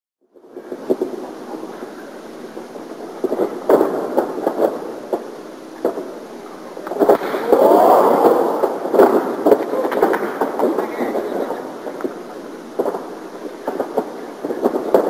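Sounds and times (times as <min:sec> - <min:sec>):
arena crowd noise: 0:06.4 - 0:12.4
crowd shouting: 0:07.2 - 0:08.9.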